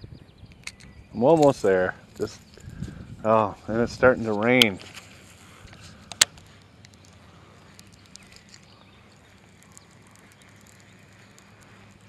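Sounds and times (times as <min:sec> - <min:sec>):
raindrops ticking: 0:09.1 - 0:12.0.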